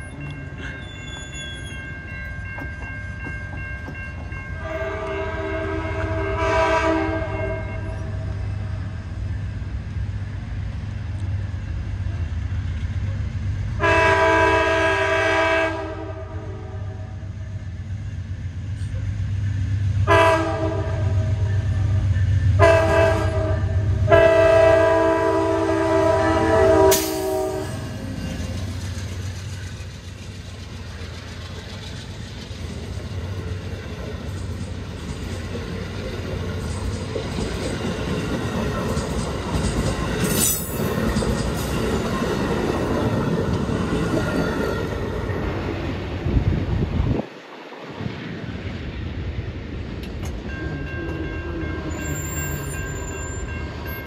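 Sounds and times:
approaching train rumble: 0:00.0 - 0:54.0
locomotive air horn blasts: 0:04.6 - 0:08.3, 0:13.8 - 0:17.1, 0:20.0 - 0:21.9, 0:22.6 - 0:28.0
wheel clatter on rails: 0:28.0 - 0:44.6.

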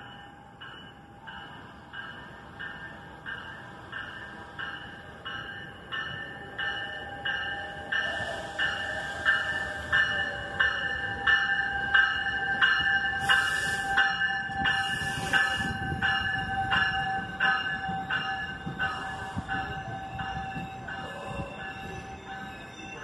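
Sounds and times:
train bell ringing: 0:00.0 - 0:23.0
train cars rumbling: 0:00.0 - 0:23.0.

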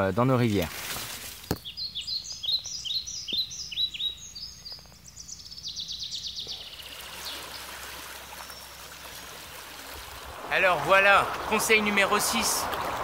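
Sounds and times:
songbird chirping and trilling: 0:01.4 - 0:08.8
shallow stream rushing: 0:06.8 - 0:13.0.

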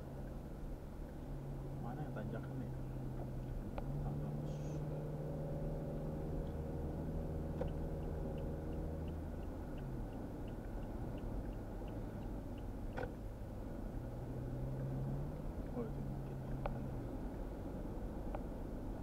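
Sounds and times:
car engine and tyre noise: 0:00.0 - 0:19.0
light even ticking: 0:07.6 - 0:13.9.

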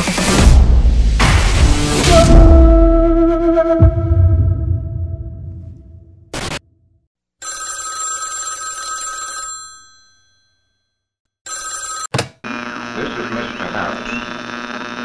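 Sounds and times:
telephone bell ringing: 0:07.4 - 0:12.1
telephone line hum: 0:11.5 - 0:15.0.

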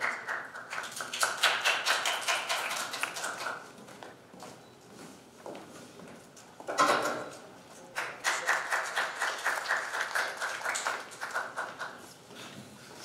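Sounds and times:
hands clapping: 0:00.0 - 0:03.6, 0:07.9 - 0:12.0.

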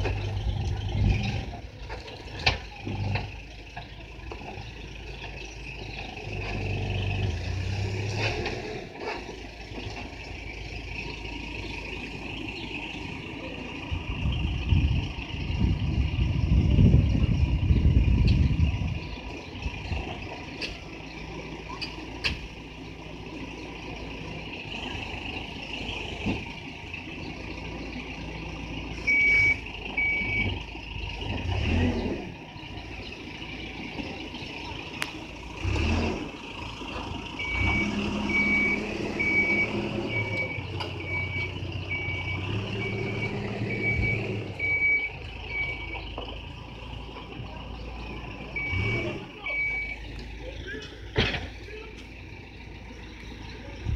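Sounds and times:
diesel engine running: 0:00.0 - 0:53.9
reversing alarm beeping: 0:29.0 - 0:30.6, 0:37.4 - 0:46.0, 0:48.5 - 0:50.0.

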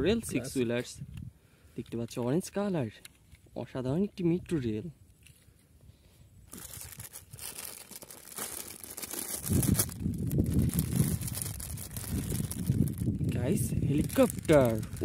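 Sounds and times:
plastic bag crinkling: 0:06.5 - 0:15.0.

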